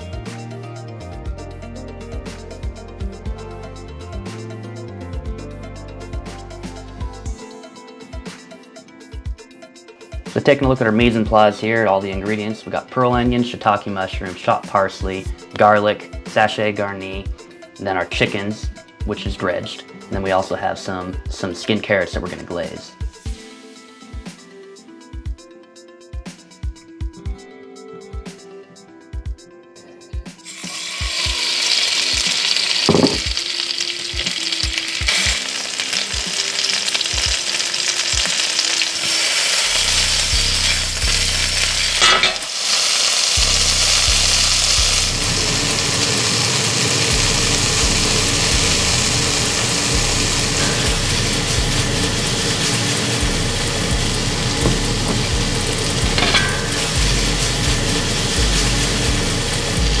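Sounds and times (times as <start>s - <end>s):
food sizzling in oil: 30.4s - 60.0s
cookware clunks: 32.9s - 33.3s, 56.2s - 56.7s.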